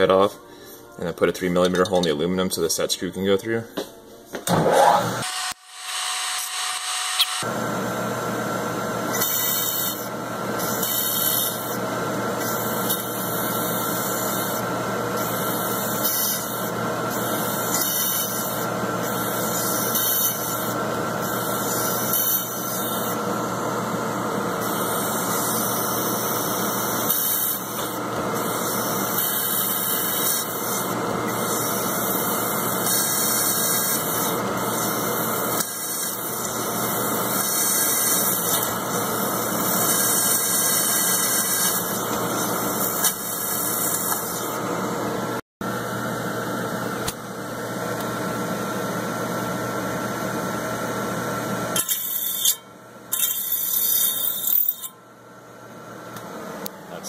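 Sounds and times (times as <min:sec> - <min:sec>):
drill bit cutting squeal: 0:04.8 - 0:07.4, 0:09.1 - 0:11.7, 0:15.2 - 0:23.2, 0:24.6 - 0:44.5, 0:51.8 - 0:54.9
milling machine spindle running: 0:05.0 - 0:45.0.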